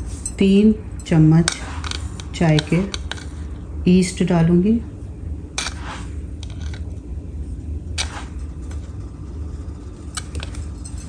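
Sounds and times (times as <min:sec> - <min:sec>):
steady low hum: 0:00.0 - 0:11.0
spoon scraping yeast granules: 0:01.4 - 0:03.4.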